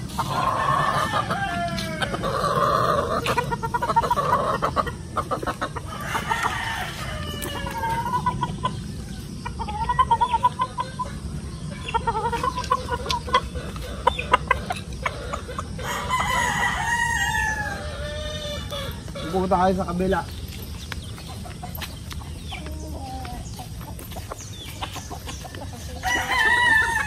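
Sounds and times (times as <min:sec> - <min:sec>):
chickens clucking: 0:00.0 - 0:27.0
rooster crowing: 0:00.1 - 0:03.3, 0:05.8 - 0:09.2, 0:15.2 - 0:19.7, 0:25.8 - 0:27.0.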